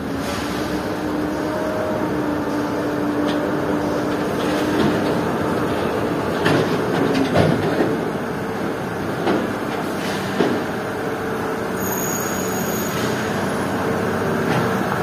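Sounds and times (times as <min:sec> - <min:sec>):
diesel truck engine running: 0:12.6 - 0:15.0.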